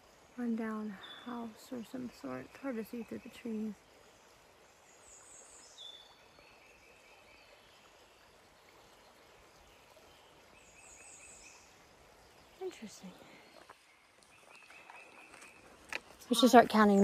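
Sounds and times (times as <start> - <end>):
distant bird song: 0.0 - 17.0
faint steady hiss: 0.0 - 17.0.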